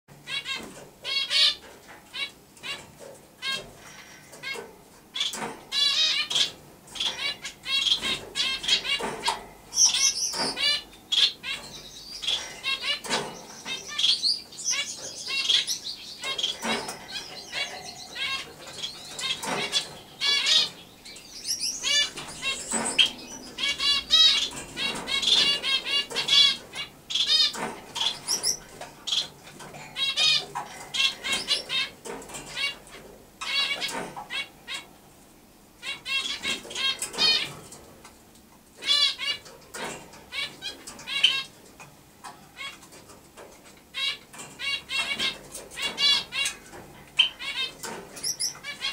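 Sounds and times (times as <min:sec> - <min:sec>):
sparrow chirping and clicking: 0:05.2 - 0:34.9, 0:43.8 - 0:48.9.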